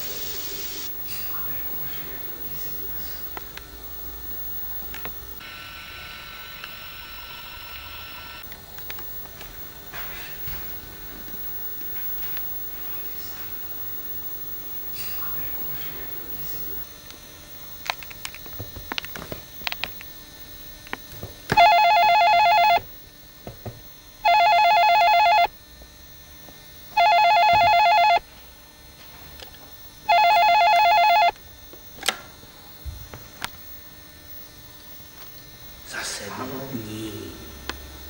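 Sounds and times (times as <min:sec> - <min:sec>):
telephone ringing: 0:21.5 - 0:22.9, 0:24.2 - 0:25.5, 0:26.9 - 0:28.2, 0:30.0 - 0:31.4.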